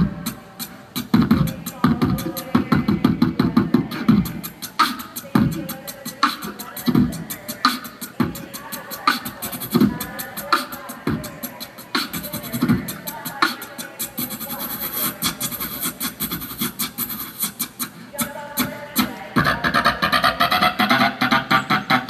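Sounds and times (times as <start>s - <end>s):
beatboxing through a pa: 0.0s - 22.0s.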